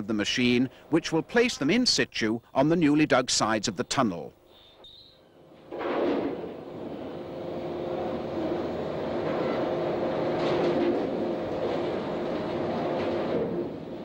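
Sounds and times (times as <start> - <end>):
machinery droning: 5.4 - 14.0.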